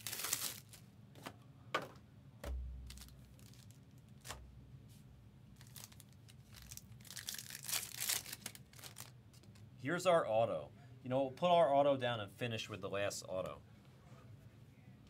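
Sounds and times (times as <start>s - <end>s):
cards rustling: 0.0s - 0.8s, 5.6s - 9.1s
foil wrapper tearing and crinkling: 0.0s - 0.8s, 2.9s - 4.4s, 5.6s - 9.1s.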